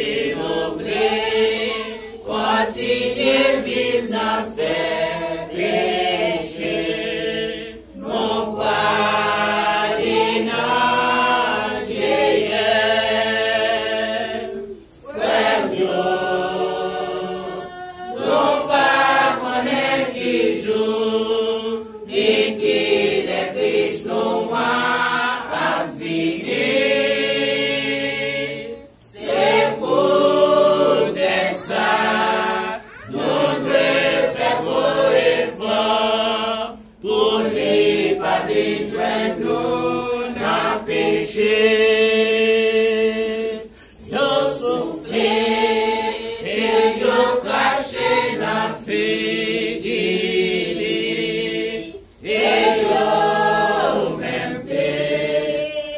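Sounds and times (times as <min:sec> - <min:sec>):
congregation singing a hymn: 0:00.0 - 0:55.9.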